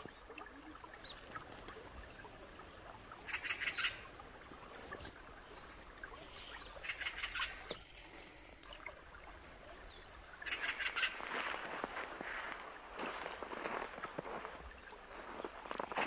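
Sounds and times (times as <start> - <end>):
magpies chattering: 0.1 - 4.4, 5.0 - 11.8.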